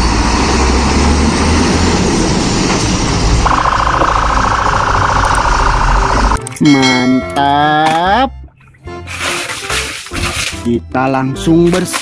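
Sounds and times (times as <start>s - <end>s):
diesel engine rumbling: 0.0s - 6.5s
buzzing warning tone: 3.4s - 6.4s.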